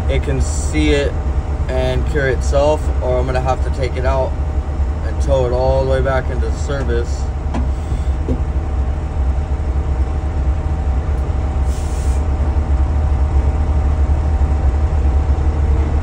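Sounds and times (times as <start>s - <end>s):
diesel engine idling: 0.0s - 16.0s.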